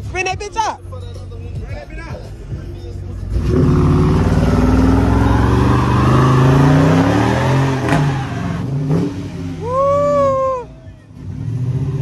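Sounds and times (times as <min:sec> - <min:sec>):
car engine revving: 0:03.1 - 0:12.0.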